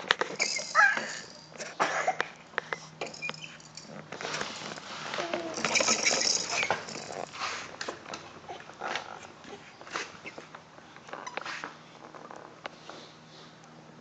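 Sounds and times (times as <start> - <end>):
plastic toys clicking and clattering: 0.0 - 2.3, 3.0 - 7.3.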